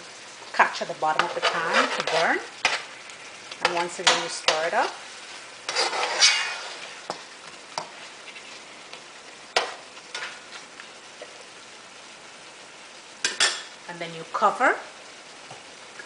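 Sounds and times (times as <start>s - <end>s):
frying sizzle: 0.0s - 16.0s
metal spoon scraping pot: 1.2s - 2.8s, 5.7s - 6.9s.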